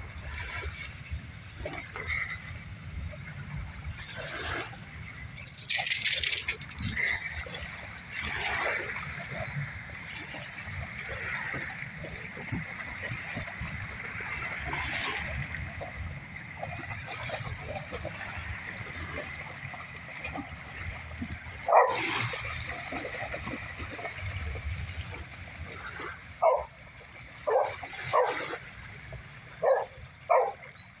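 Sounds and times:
water splashing and lapping: 0.0s - 31.0s
dogs barking: 21.6s - 22.4s, 26.4s - 26.8s, 27.4s - 28.6s, 29.6s - 30.7s.

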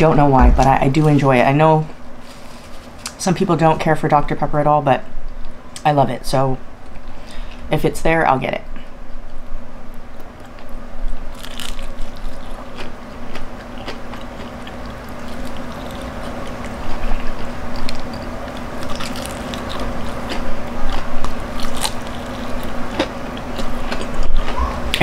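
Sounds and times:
steady low hum: 0.0s - 25.0s
crunching fried chicken: 10.2s - 25.0s.

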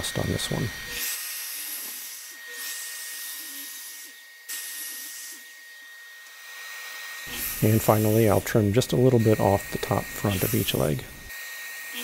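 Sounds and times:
miter saw cutting wood: 0.0s - 12.0s.

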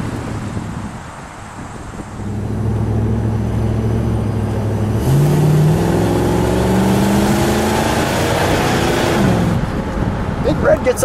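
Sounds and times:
car engine accelerating: 1.9s - 10.5s.

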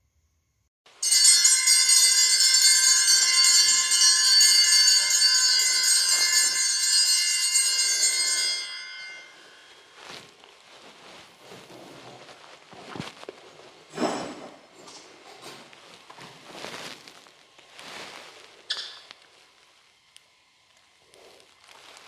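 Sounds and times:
small bells jingling: 1.0s - 11.2s.

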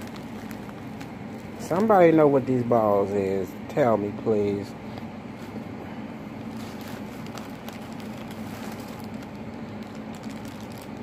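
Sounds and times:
packing rustles and ticks: 0.0s - 2.1s, 6.4s - 11.0s
low electrical hum: 0.0s - 11.0s.

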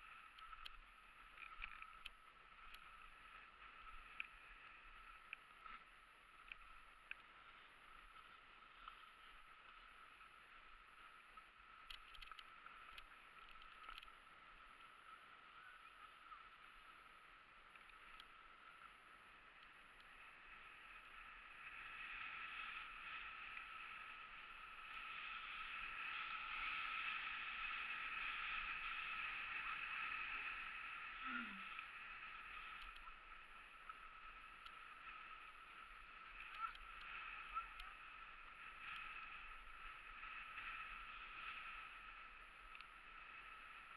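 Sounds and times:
faint clicks: 0.0s - 43.9s
skis scraping over snow: 22.6s - 43.9s.

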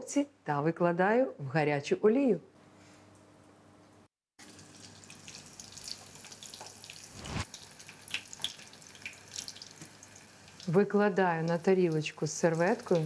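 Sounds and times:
oil sizzling with crackling pops: 4.4s - 13.0s.

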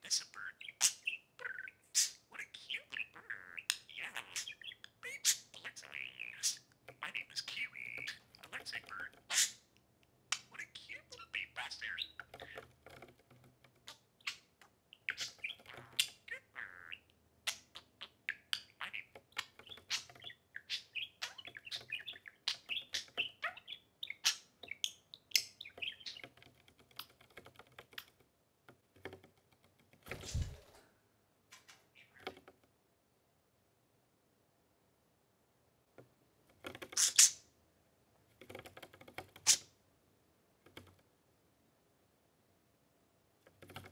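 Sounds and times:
budgerigars chirping: 0.0s - 9.7s, 10.3s - 12.6s, 13.9s - 26.3s, 36.9s - 37.4s.

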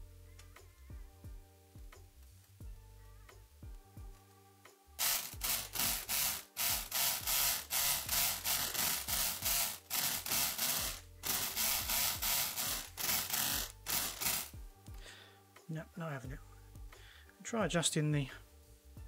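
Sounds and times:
electric lock pick gun buzzing: 5.0s - 14.6s.

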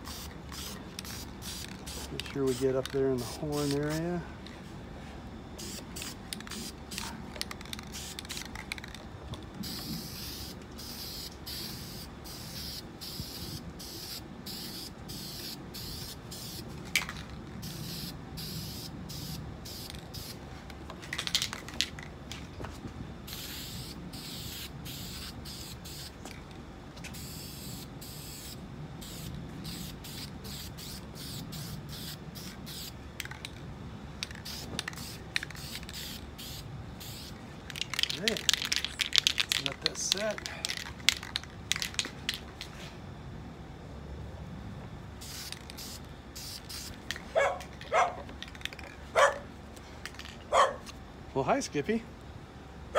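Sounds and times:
spray paint can hissing: 0.0s - 4.0s, 5.6s - 9.0s, 9.6s - 20.4s, 23.3s - 26.2s, 27.0s - 33.5s, 34.2s - 42.4s, 45.2s - 47.2s.

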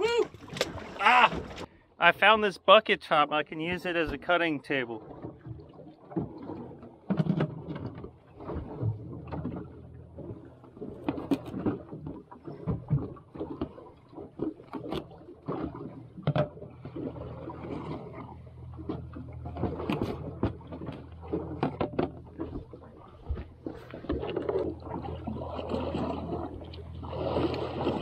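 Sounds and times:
low steady hum: 0.0s - 28.0s
knocks and taps on boat deck: 14.8s - 16.6s, 18.8s - 24.6s.

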